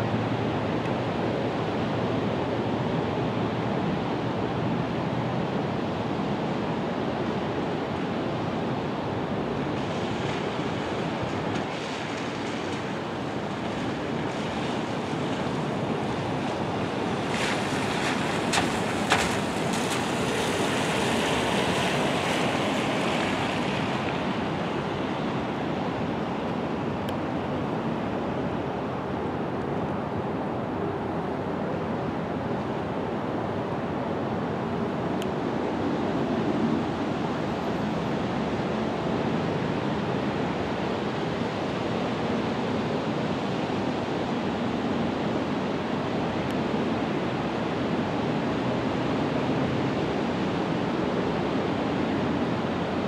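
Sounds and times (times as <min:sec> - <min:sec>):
outdoor rushing noise: 0:09.5 - 0:26.6.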